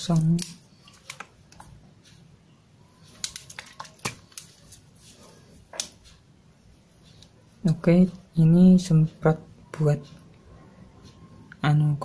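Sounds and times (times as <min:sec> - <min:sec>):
plastic bottle clicks and crinkles: 0:03.2 - 0:04.5.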